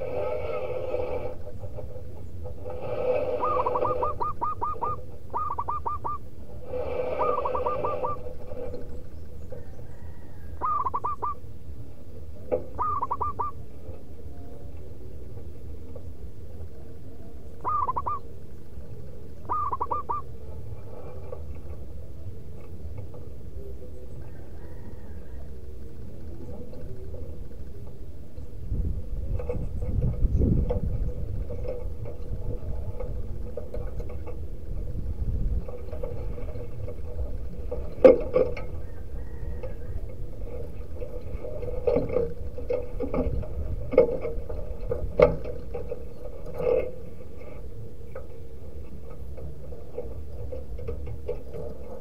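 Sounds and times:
dove cooing: 0:00.0 - 0:52.0
low hum: 0:00.0 - 0:52.0.

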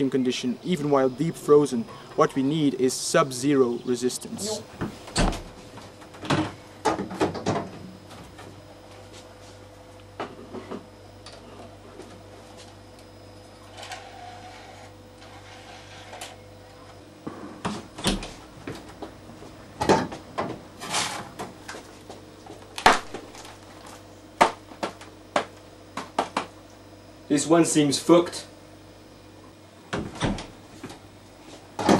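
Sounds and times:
freezer humming: 0:00.0 - 0:31.9.

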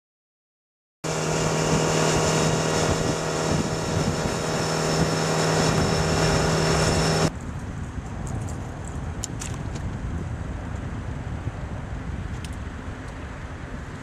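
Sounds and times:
outboard motor running: 0:01.0 - 0:07.3
rush of wake and wind: 0:01.1 - 0:14.0.

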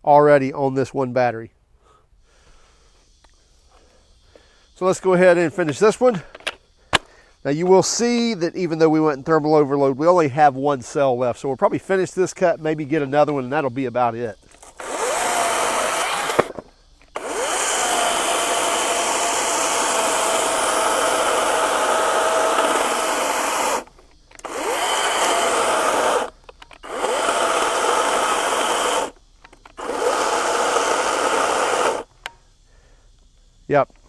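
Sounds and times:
chainsaw cutting log: 0:14.4 - 0:32.4.

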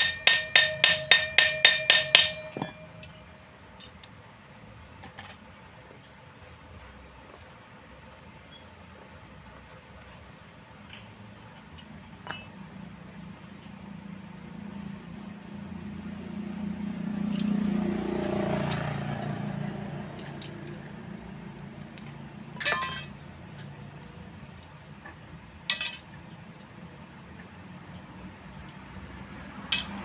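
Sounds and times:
metal spanners clinking: 0:00.0 - 0:04.1, 0:11.5 - 0:13.0, 0:17.3 - 0:19.3, 0:20.2 - 0:20.9, 0:22.5 - 0:23.7, 0:25.7 - 0:26.2, 0:29.7 - 0:30.0.

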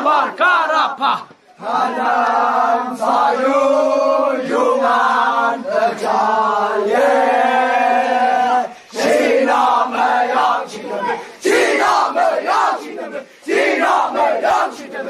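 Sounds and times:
group chanting: 0:00.0 - 0:15.0.

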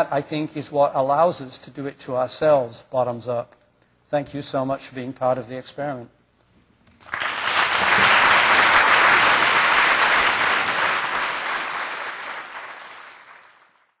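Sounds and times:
audience applauding: 0:07.0 - 0:14.0.

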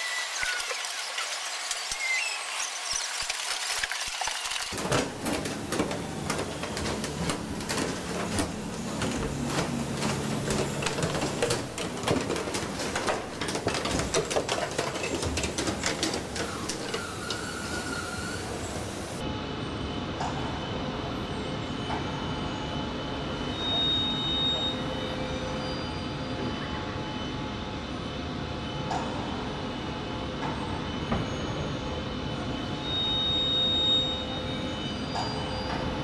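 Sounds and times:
low machinery hum: 0:04.8 - 0:23.3.

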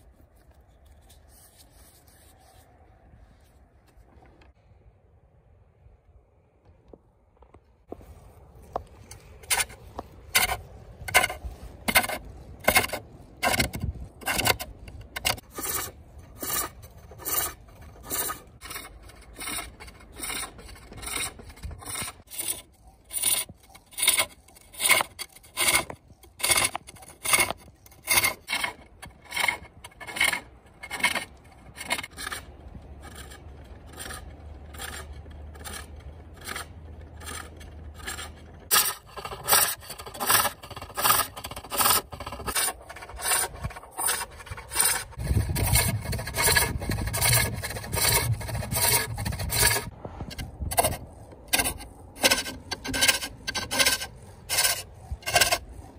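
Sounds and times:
hook tool scraping wood on lathe: 0:00.0 - 0:02.8, 0:07.9 - 0:55.9.

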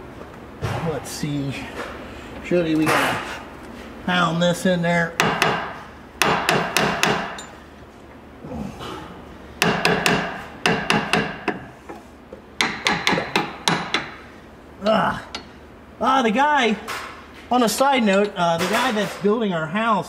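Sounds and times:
hammer pounding metal: 0:05.2 - 0:07.5, 0:09.6 - 0:11.7, 0:12.6 - 0:14.2.

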